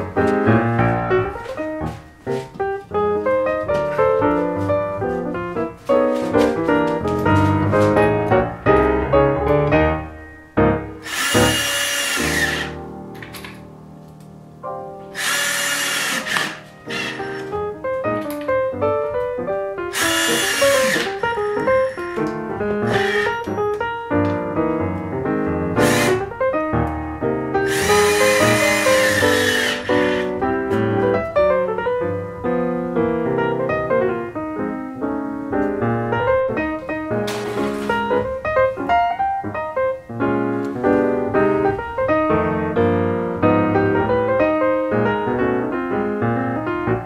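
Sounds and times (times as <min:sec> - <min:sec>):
piano music: 0:00.0 - 0:47.0
cordless drill driving screws: 0:11.0 - 0:12.8, 0:15.2 - 0:17.5, 0:19.9 - 0:22.0, 0:22.9 - 0:23.5, 0:25.8 - 0:26.2, 0:27.7 - 0:30.3.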